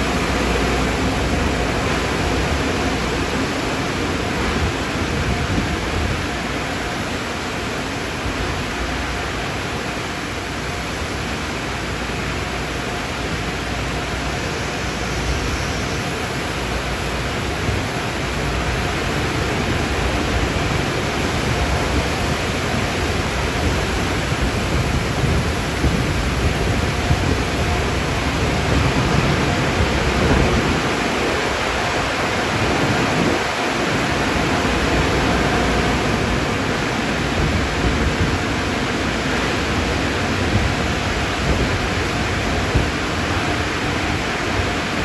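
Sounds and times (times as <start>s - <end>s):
car wash machinery rushing: 0.0s - 45.0s.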